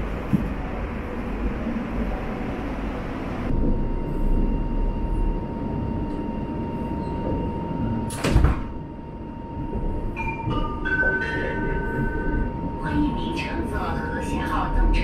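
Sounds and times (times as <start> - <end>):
electric train rumbling: 0.0 - 15.0
steady high tone: 8.8 - 15.0.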